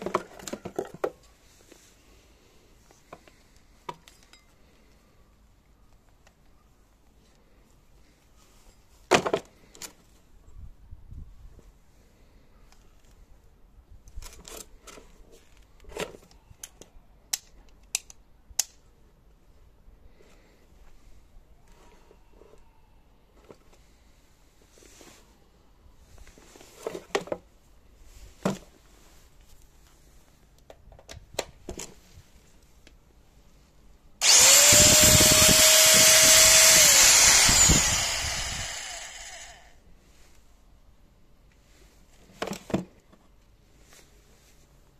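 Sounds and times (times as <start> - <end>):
electric metal shear whining: 34.2 - 39.7.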